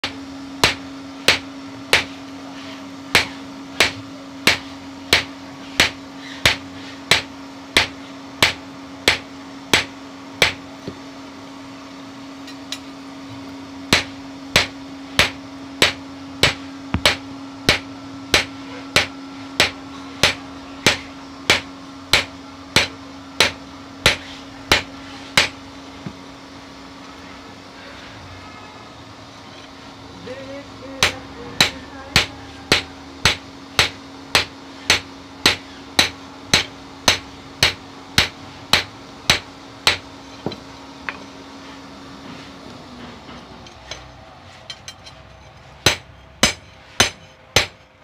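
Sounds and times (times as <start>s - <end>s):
hammer striking steel on anvil: 0.0s - 2.2s, 3.1s - 10.6s, 13.9s - 25.6s, 31.0s - 41.3s, 44.7s - 47.9s
steady low hum: 0.0s - 48.0s.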